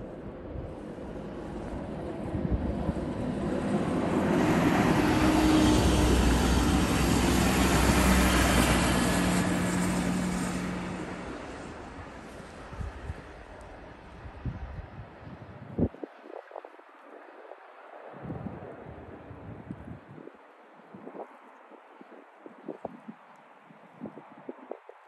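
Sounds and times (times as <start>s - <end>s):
train passing at speed: 0.0s - 14.0s.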